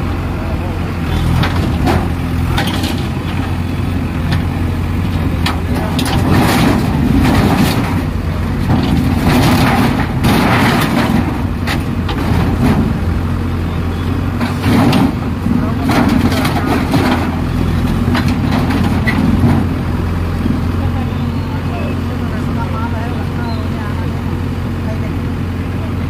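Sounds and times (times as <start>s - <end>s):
diesel engine running: 0.0s - 26.0s
bucket crunching metal and timber: 1.0s - 21.0s.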